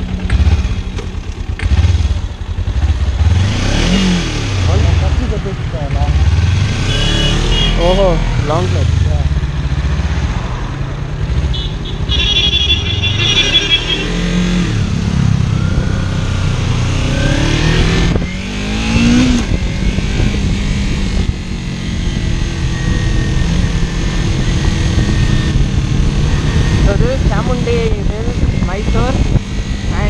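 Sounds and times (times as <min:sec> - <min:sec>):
motorcycle engine revving: 0:00.0 - 0:30.0
wind rush: 0:14.6 - 0:30.0.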